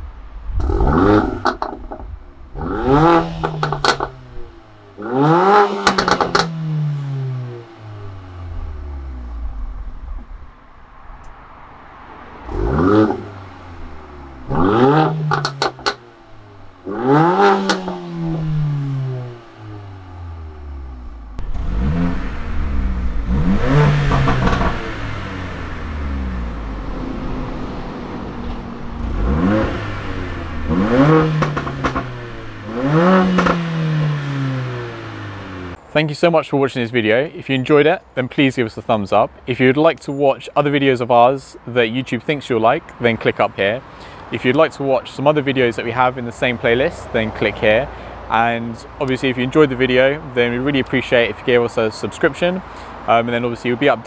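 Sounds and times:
car engine revving: 0:00.0 - 0:35.8.

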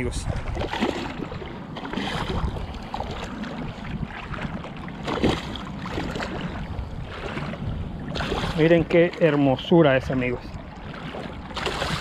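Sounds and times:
shallow water sloshing and splashing: 0:00.0 - 0:12.0
sharp loud splash: 0:00.4 - 0:02.5, 0:05.0 - 0:06.4, 0:08.1 - 0:08.6, 0:11.6 - 0:12.0.

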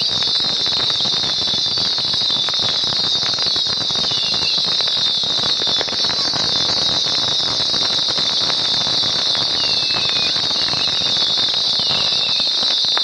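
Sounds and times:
firework crackles and pops: 0:00.0 - 0:13.0
firework whistle sliding down: 0:00.0 - 0:13.0.

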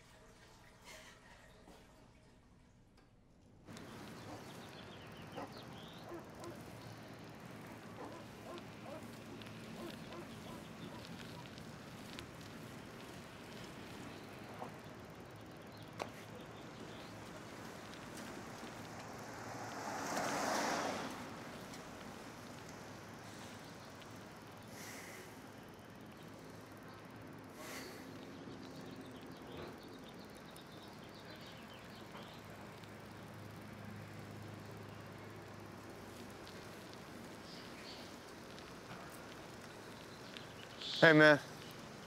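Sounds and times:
street ambience: 0:02.9 - 0:42.0
bicycle passing whoosh: 0:03.8 - 0:27.4.

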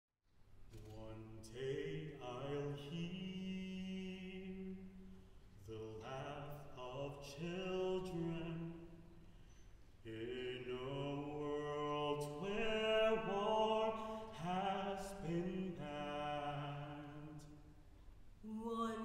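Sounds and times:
choir singing a cappella: 0:10.1 - 0:17.5, 0:18.4 - 0:19.0.

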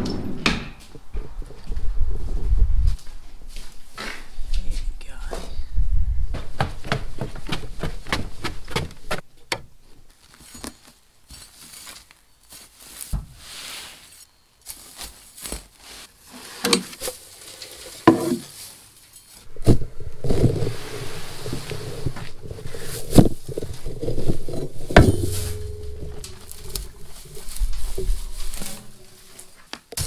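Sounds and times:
footsteps on wooden stairs: 0:06.3 - 0:09.2
hay rustling and crackling: 0:11.3 - 0:29.8
dull thumps: 0:19.5 - 0:30.0.

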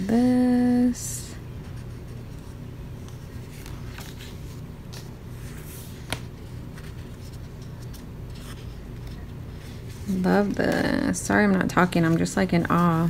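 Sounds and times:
steady low hum: 0:00.0 - 0:13.0
paper rustles: 0:02.3 - 0:11.1.

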